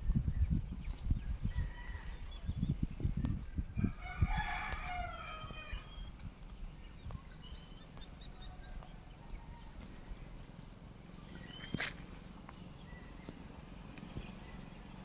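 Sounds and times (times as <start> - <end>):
rooster crowing: 3.8 - 5.9
small birds chirping: 5.7 - 15.0.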